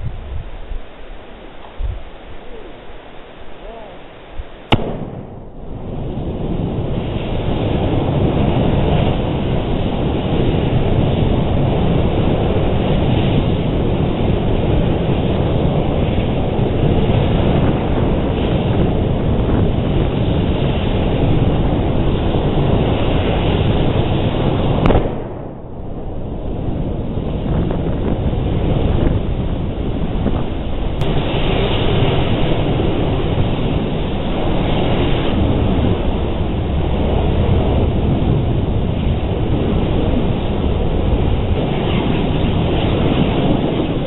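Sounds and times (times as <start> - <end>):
roar of burning gas jet: 4.6 - 44.0
sharp crack: 4.7 - 6.0, 24.8 - 25.9, 31.0 - 34.0.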